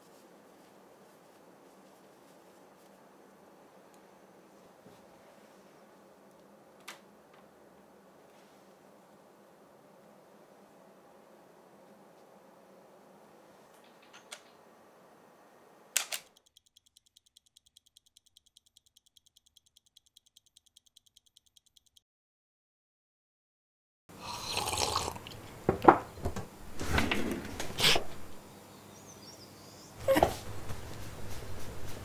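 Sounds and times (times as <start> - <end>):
fast light ticking: 16.3 - 22.0.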